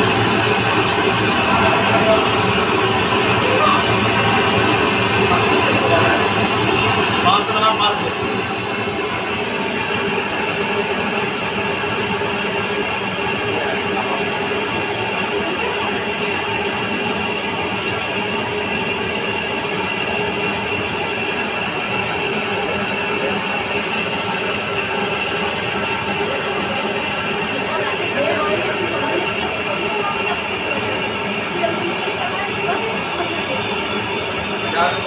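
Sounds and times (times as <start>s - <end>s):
mechanical running noise: 0.0s - 35.0s.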